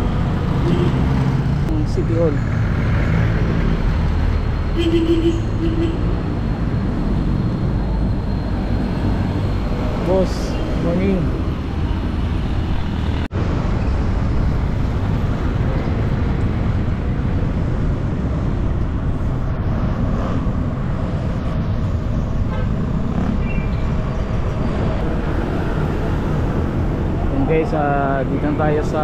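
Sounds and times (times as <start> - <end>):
road traffic: 0.0 - 29.0
vehicle horn toot: 4.8 - 6.1.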